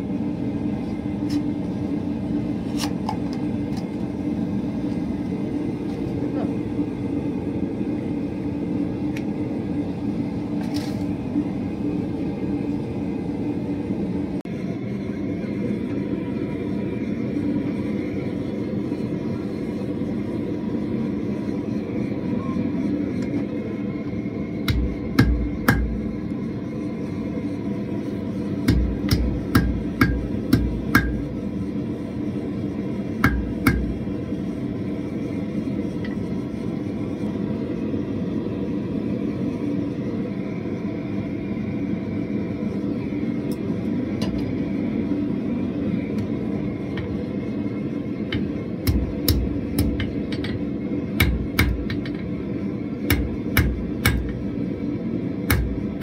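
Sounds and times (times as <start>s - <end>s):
gas forge rushing: 0.0s - 56.0s
hammer striking steel on anvil: 24.6s - 26.0s, 28.6s - 31.3s, 33.2s - 34.0s, 48.3s - 50.6s, 51.2s - 52.2s, 53.1s - 54.4s, 55.5s - 56.0s.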